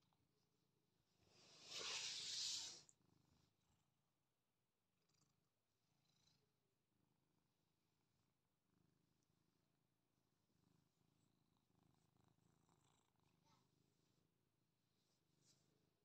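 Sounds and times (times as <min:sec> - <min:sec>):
soft brushing of fur: 0:01.3 - 0:02.9, 0:14.9 - 0:15.8
cat purring: 0:04.9 - 0:14.3.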